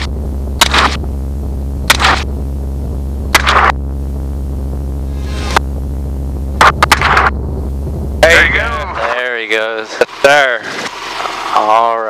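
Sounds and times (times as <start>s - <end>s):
helicopter engine and rotor drone: 5.6s - 12.0s.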